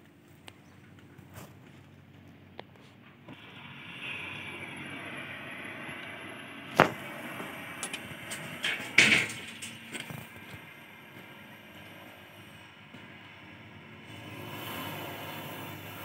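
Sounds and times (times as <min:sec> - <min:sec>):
cutting torch hissing: 0:03.3 - 0:16.0
sharp pop: 0:06.8 - 0:07.0
loud gas burst: 0:14.0 - 0:16.0.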